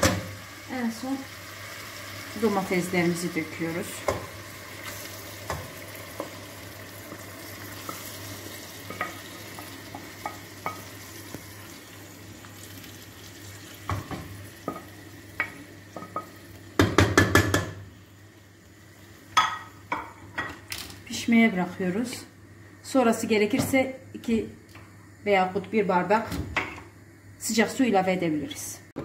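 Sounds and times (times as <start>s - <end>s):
food sizzling in a pot: 0.0s - 27.9s
spoon knocking against pot: 13.9s - 17.8s.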